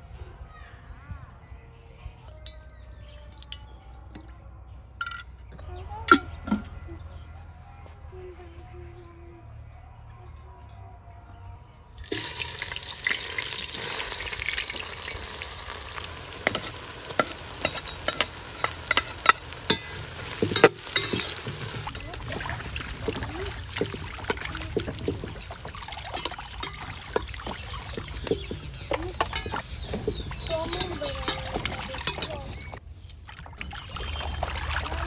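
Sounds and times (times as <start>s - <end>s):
water splashing in a basin: 12.0s - 35.0s
onions sizzling in hot oil: 12.1s - 32.8s.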